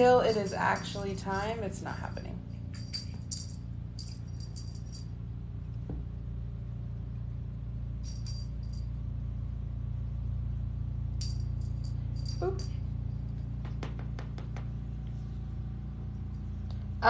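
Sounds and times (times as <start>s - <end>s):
cat toy jingling: 0.0s - 5.2s, 11.2s - 13.1s
steady low hum: 0.0s - 17.0s.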